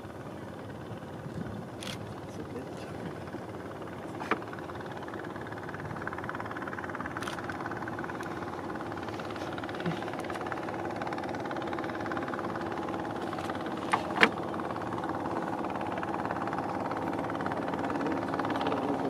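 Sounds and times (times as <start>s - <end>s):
boat engine drone: 0.0s - 19.0s.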